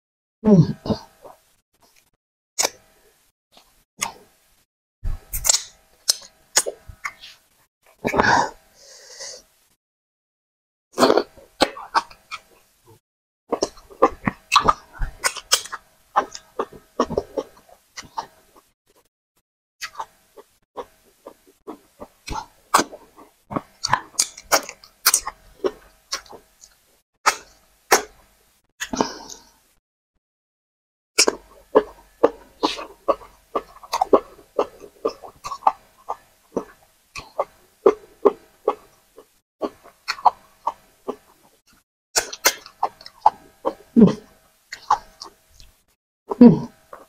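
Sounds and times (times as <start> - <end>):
wet mouth eating noises: 5.2 - 7.4, 13.5 - 19.1, 19.8 - 28.2, 31.2 - 41.6, 42.2 - 45.8
wet chewing and lip smacking: 31.2 - 41.5, 42.2 - 43.9, 44.7 - 45.8
slurping: 31.2 - 41.6.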